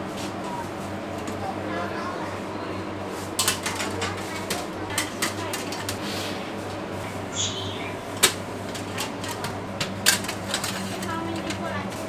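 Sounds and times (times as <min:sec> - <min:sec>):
metal trays clanking and rattling: 0:03.4 - 0:06.0, 0:08.2 - 0:11.8
steady low hum: 0:06.4 - 0:11.8.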